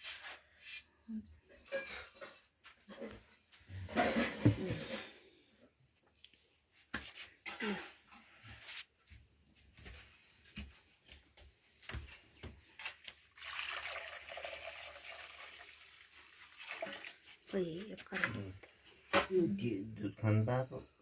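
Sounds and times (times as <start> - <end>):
milk pouring into pan: 13.3 - 17.5.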